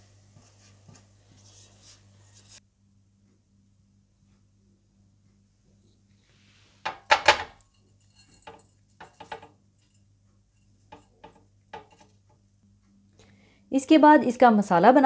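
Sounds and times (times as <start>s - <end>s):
strainer tapping ceramic dish: 8.2s - 9.6s, 10.9s - 12.1s.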